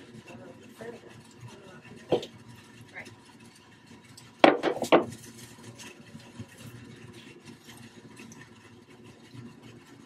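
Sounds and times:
hammer knocking on wooden box: 4.4s - 5.1s.

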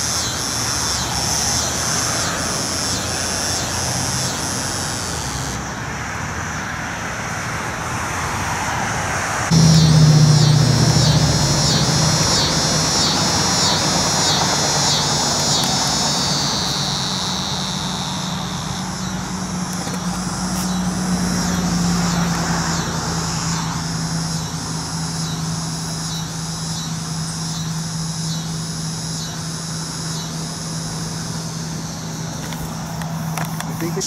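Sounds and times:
cicadas buzzing: 0.0s - 34.0s
steady low hum: 9.5s - 34.0s.

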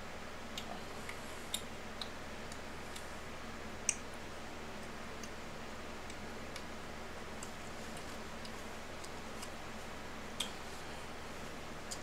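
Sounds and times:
steady low hum: 0.0s - 12.0s
eating clicks and ticks: 11.8s - 12.0s.

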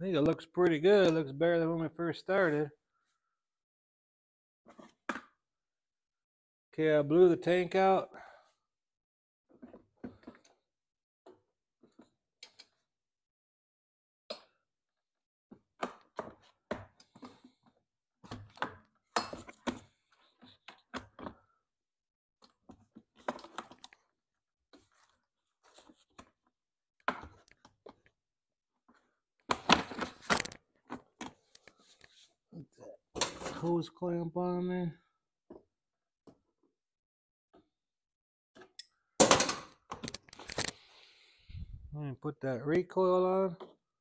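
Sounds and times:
plastic and metal parts clicking: 30.0s - 30.6s, 39.9s - 40.8s.

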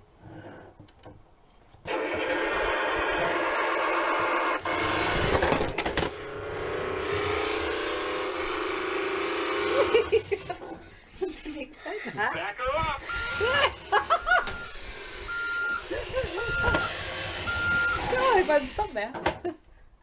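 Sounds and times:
toy truck engine sound effect: 1.9s - 10.8s, 12.4s - 19.2s.

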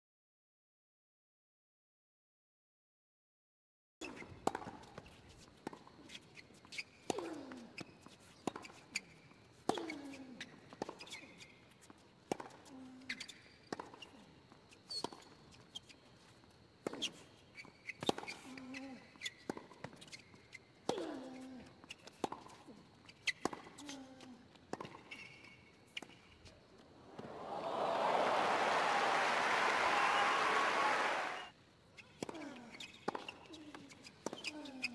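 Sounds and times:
shoes squeaking on court: 4.0s - 12.1s, 13.1s - 24.0s, 24.7s - 27.0s, 32.0s - 34.9s.

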